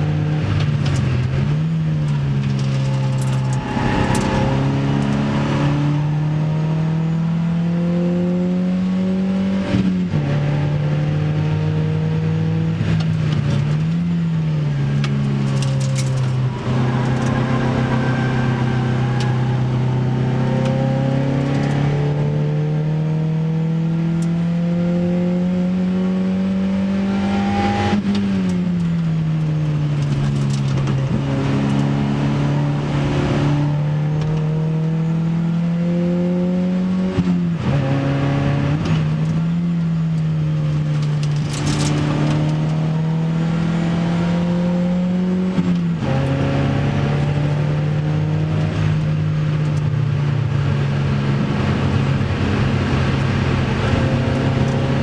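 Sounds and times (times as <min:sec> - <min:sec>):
car engine accelerating: 0:00.0 - 0:55.0.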